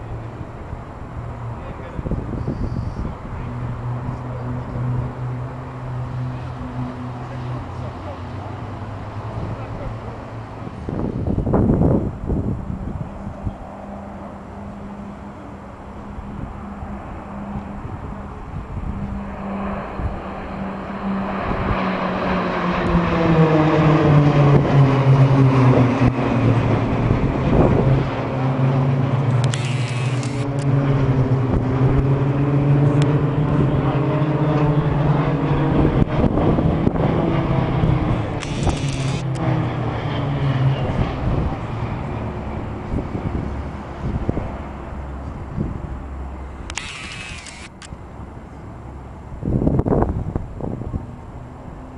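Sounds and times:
propeller aircraft flying overhead: 0:00.0 - 0:51.9
wind noise on microphone: 0:00.4 - 0:04.1, 0:09.2 - 0:13.9, 0:16.2 - 0:20.5, 0:21.2 - 0:28.2, 0:29.3 - 0:39.8, 0:40.7 - 0:46.1, 0:49.2 - 0:51.9.

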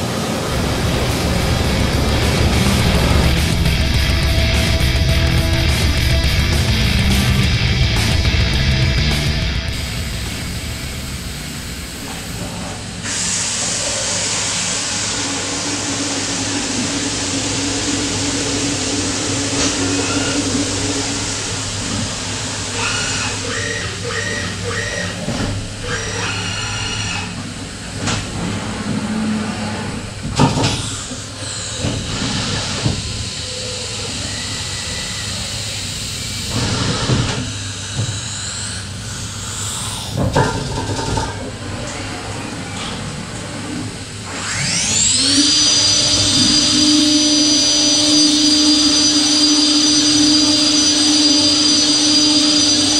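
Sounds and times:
low machine hum: 0:00.0 - 0:13.1
machine axes whining: 0:00.4 - 0:13.7, 0:29.7 - 0:52.9
spraying coolant hiss: 0:09.7 - 0:24.4.

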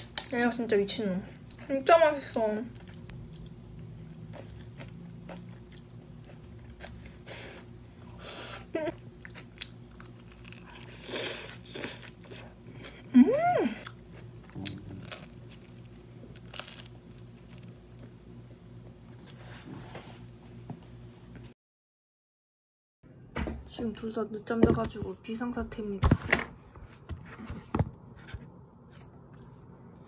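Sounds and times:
low steady hum: 0:00.0 - 0:21.5
crunching and chewing food: 0:01.3 - 0:08.2, 0:08.9 - 0:13.2, 0:13.8 - 0:18.3.

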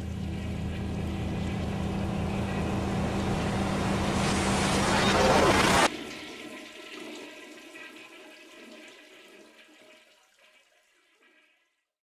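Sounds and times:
water rushing and gurgling: 0:00.0 - 0:07.2.

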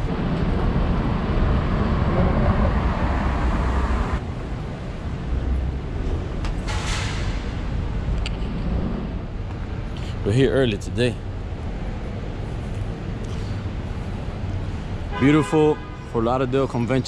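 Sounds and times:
car passing: 0:00.0 - 0:04.6
road traffic noise: 0:00.0 - 0:17.0.

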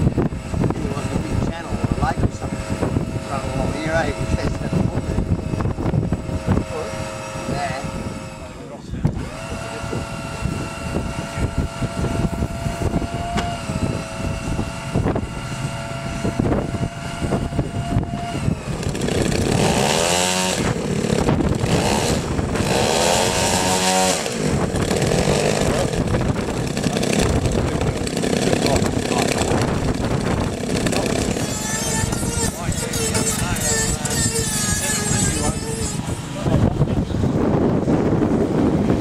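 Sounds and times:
model aircraft engines running: 0:00.0 - 0:39.0.

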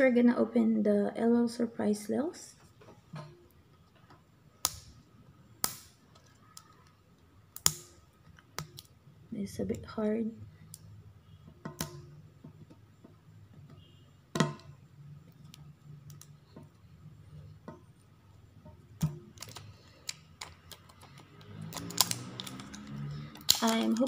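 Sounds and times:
low steady hum: 0:00.0 - 0:24.0
plastic wrapper crackling: 0:19.3 - 0:24.0.

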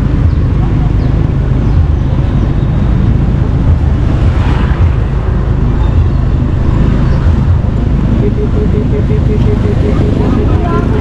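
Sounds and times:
atv engine rumbling: 0:00.0 - 0:11.0
higher-pitched noise: 0:08.0 - 0:11.0.

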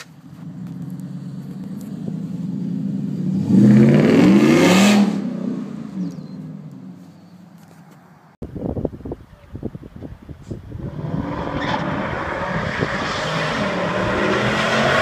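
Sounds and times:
truck engine revving: 0:00.4 - 0:06.7, 0:10.8 - 0:15.0.

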